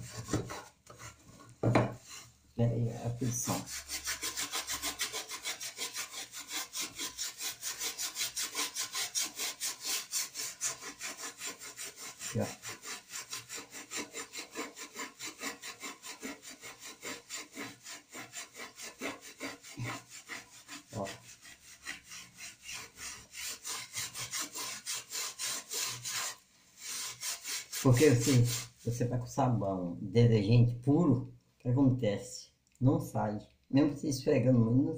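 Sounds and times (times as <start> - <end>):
scrubbing a metal pot: 0.0 - 1.4, 3.0 - 29.1.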